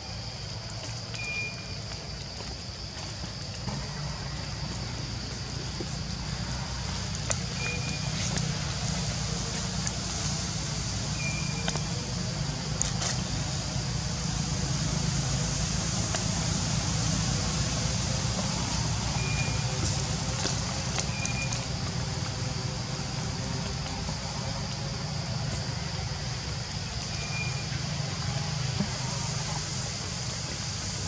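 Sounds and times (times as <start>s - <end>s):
faint high chirps: 1.1s - 1.9s, 11.2s - 12.0s, 19.0s - 20.0s, 21.0s - 21.7s, 27.1s - 27.9s
hiss: 3.4s - 31.0s.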